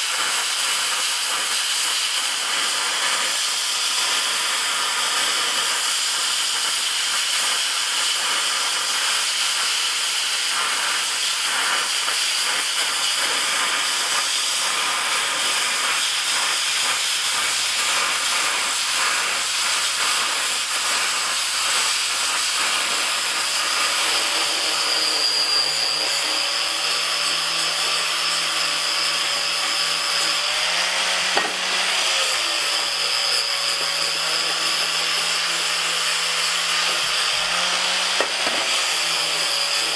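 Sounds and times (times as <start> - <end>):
plasma cutter hissing: 0.0 - 39.9.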